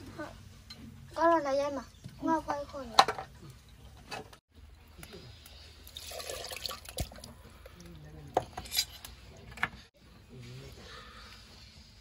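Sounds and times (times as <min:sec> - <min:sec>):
water splashing into clay pot: 0:05.8 - 0:07.4.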